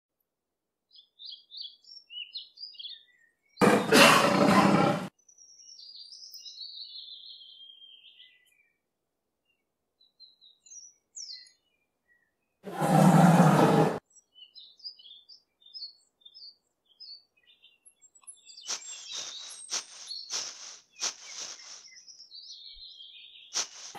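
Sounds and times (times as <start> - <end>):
birds chirping: 0.9 - 23.9
lion roar: 3.6 - 5.1, 12.7 - 14.0.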